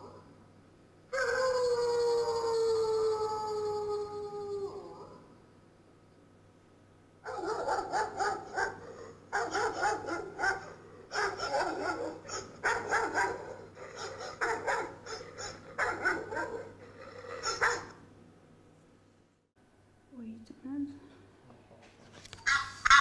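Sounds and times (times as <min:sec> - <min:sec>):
dog barking: 0:07.2 - 0:16.8, 0:17.4 - 0:18.0.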